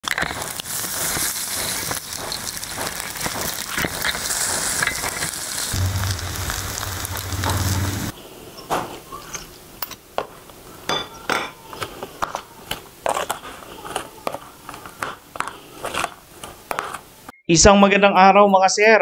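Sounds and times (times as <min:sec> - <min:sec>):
meat sizzling on a grill: 0:00.0 - 0:08.1
low hum: 0:05.7 - 0:08.1.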